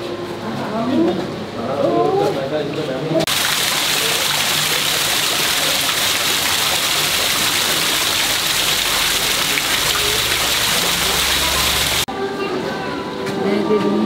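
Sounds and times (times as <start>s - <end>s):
waterfall splashing onto stone: 3.3s - 12.1s.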